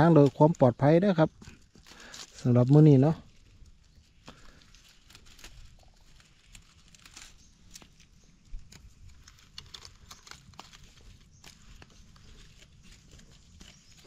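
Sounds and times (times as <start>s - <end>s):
dry leaves and twigs crackling: 0.0s - 14.0s.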